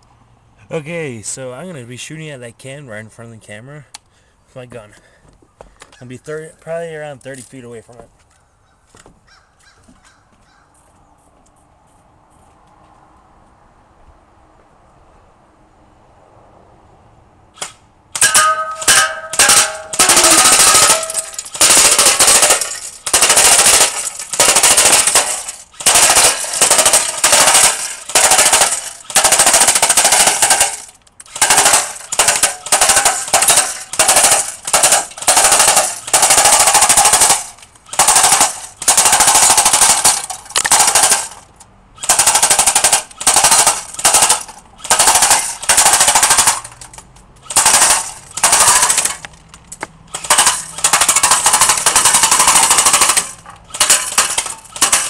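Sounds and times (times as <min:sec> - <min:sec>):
airsoft gun firing bursts: 0:18.2 - 0:41.4, 0:42.0 - 0:46.7, 0:47.5 - 0:49.2, 0:50.1 - 0:55.0.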